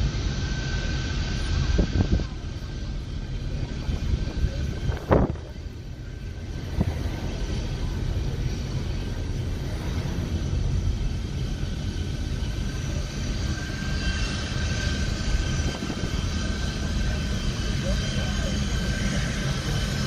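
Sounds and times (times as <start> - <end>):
jet engines whining: 0.0 - 20.0
road rumble inside moving car: 3.4 - 13.1.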